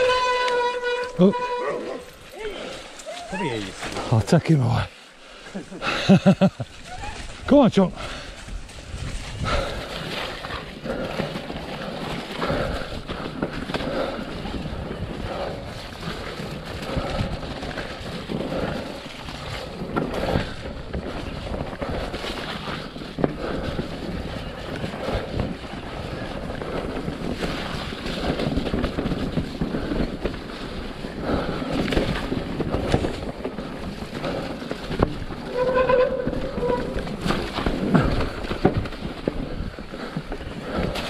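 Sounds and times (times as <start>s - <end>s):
rumble of bike tyres: 0.0s - 41.0s
wind buffeting microphone: 6.7s - 41.0s
bike knocking over bumps: 9.7s - 41.0s.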